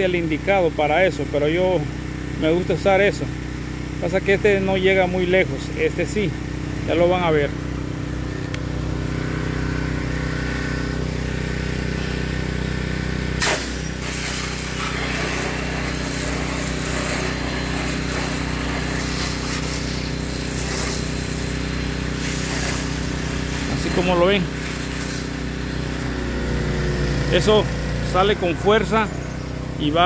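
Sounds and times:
pressure washer engine running: 0:00.0 - 0:30.0
water spray hissing: 0:13.4 - 0:26.1.

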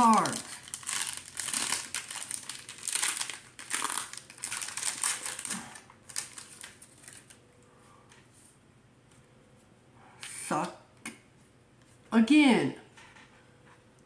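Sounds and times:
wrapper crinkling: 0:00.0 - 0:07.4.

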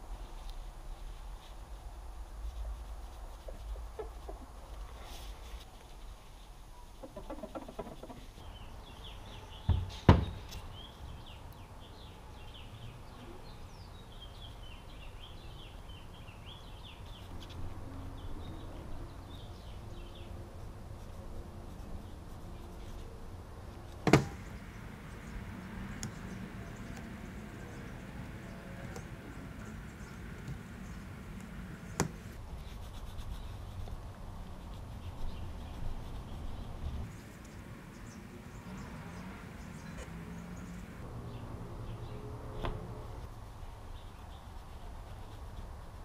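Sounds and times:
faint birds chirping: 0:00.0 - 0:46.0
low steady background: 0:00.0 - 0:46.0
sharp knocks: 0:24.0 - 0:24.5.

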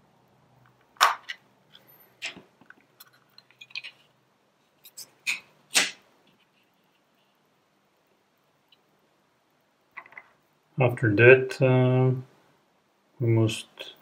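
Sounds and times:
plastic case snapping open: 0:01.0 - 0:01.4.

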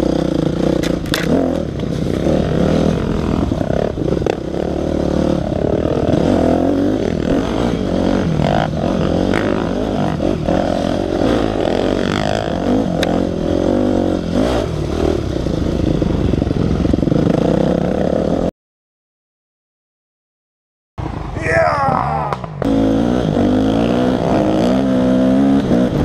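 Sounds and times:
dirt bike engine revving: 0:00.0 - 0:18.5, 0:21.1 - 0:26.0
bike knocking and clattering: 0:00.8 - 0:01.4.

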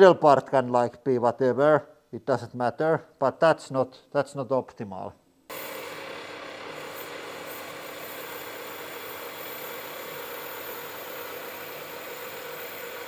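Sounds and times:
metal lathe humming: 0:05.5 - 0:13.0.

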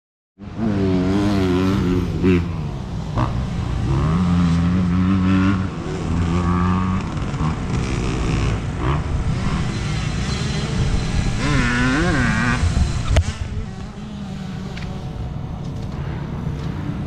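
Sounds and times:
dirt bike engines revving: 0:00.4 - 0:17.0.

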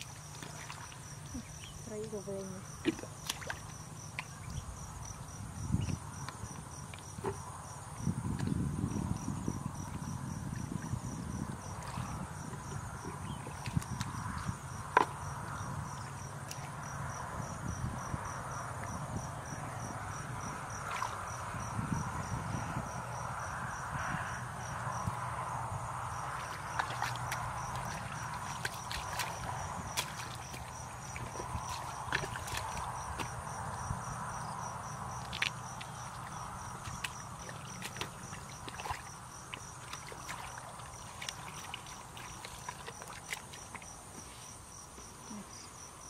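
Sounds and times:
squelching and splashing in mud: 0:00.0 - 0:01.9, 0:02.7 - 0:09.1, 0:10.0 - 0:17.5, 0:26.1 - 0:44.6
insect chirping: 0:00.0 - 0:46.0.

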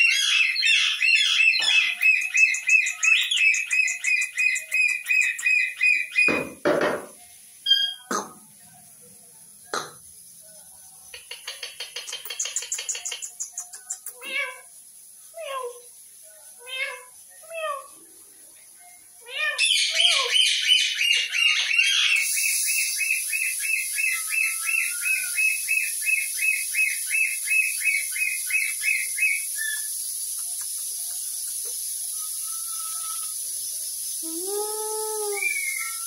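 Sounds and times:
parakeet high chirps: 0:00.0 - 0:06.4, 0:07.6 - 0:08.2, 0:11.1 - 0:14.7, 0:19.2 - 0:33.6
steady high hiss: 0:00.0 - 0:36.0.

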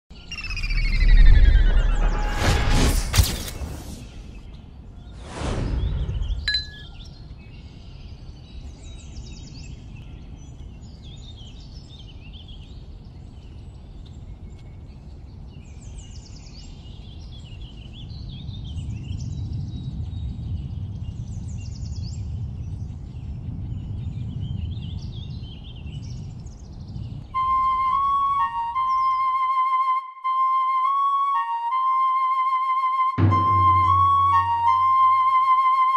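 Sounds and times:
low rumble: 0:00.2 - 0:06.9, 0:33.2 - 0:35.2
loud falling whoosh: 0:00.3 - 0:04.4, 0:05.1 - 0:06.5, 0:33.2 - 0:35.4
brief high ping: 0:33.2 - 0:35.0.

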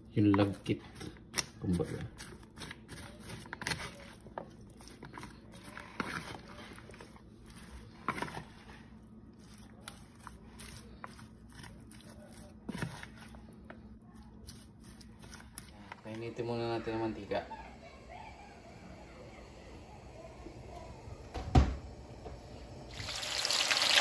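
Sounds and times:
spatula stirring sticky batter: 0:00.1 - 0:18.4.

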